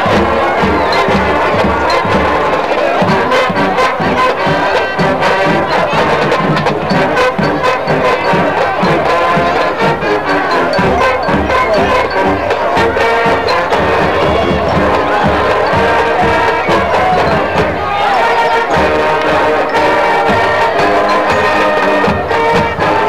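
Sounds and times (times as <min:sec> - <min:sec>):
marching band brass: 0:00.0 - 0:23.0
bass drums beating: 0:06.4 - 0:22.9.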